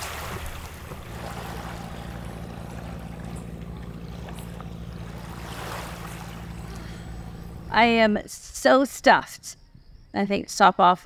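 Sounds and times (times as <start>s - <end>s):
wind and water hiss: 0.0s - 8.2s
boat engine droning: 0.0s - 8.7s.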